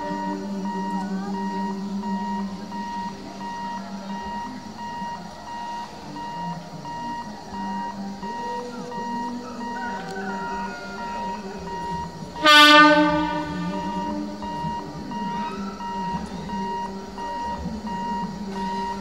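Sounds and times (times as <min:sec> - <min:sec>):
electronic warning beeper: 0:00.0 - 0:19.0
train horn: 0:12.4 - 0:15.7.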